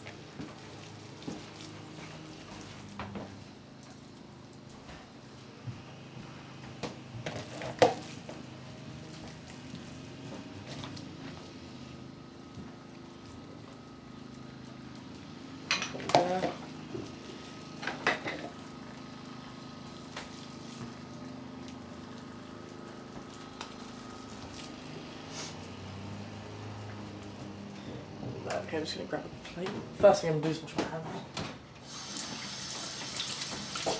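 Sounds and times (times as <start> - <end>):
dishes and utensils clinking: 15.7 - 16.6.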